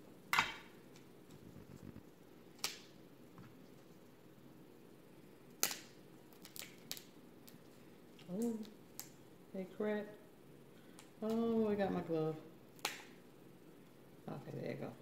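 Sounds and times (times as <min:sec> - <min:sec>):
crab shells cracking: 0:05.5 - 0:07.6, 0:12.8 - 0:13.2.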